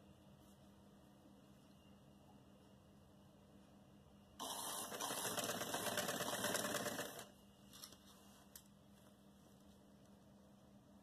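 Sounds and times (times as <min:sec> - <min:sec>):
sewing machine stitching: 0:04.4 - 0:07.3.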